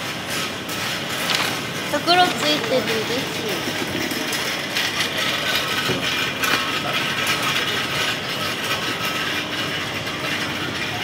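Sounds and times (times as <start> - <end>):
steady rattling clattering noise: 0.0 - 11.0.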